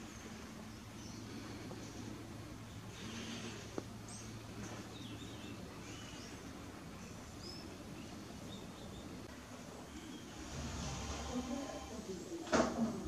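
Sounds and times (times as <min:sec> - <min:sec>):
small birds chirping: 0:00.0 - 0:10.6
low outdoor hum: 0:00.0 - 0:13.0.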